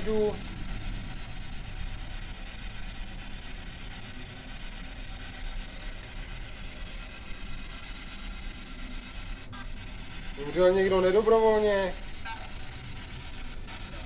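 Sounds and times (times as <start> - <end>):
low rumble: 0.0 - 5.1.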